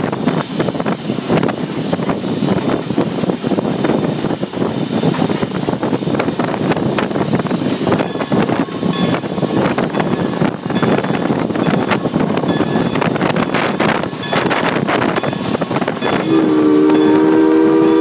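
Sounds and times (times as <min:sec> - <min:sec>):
steam locomotive rumbling: 0:00.0 - 0:18.0
wind on microphone: 0:00.0 - 0:18.0.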